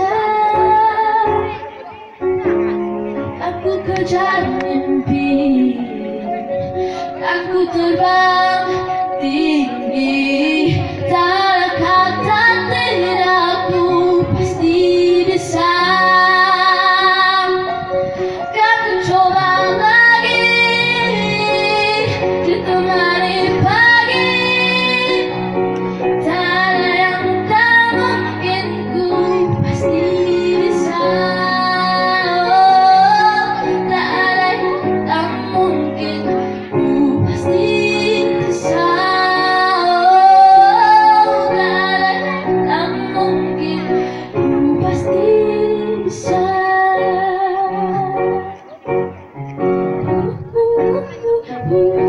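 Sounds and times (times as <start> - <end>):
girl singing into microphone: 0.0 - 49.3, 50.0 - 52.0
electronic keyboard accompaniment: 0.0 - 52.0.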